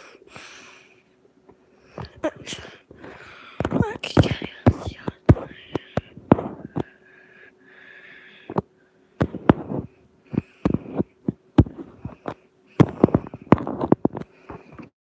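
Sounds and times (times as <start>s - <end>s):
sharp clicks and knocks: 8.5s - 14.9s.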